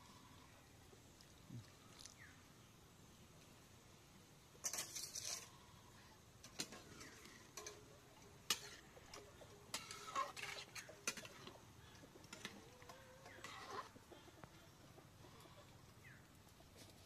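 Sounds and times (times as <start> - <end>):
metal spatula scraping metal pan: 4.6 - 5.6, 6.4 - 11.6, 12.3 - 14.0.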